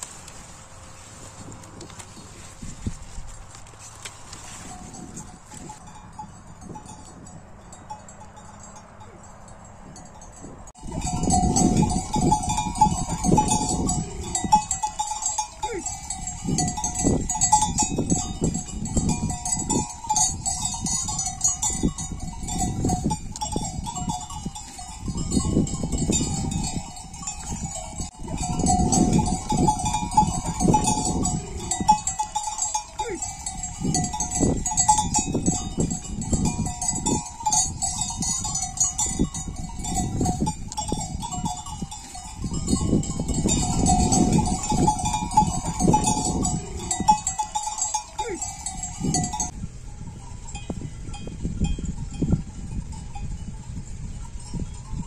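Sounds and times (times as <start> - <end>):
rustling: 0.0 - 5.8
small metal bell jingling: 3.8 - 55.0.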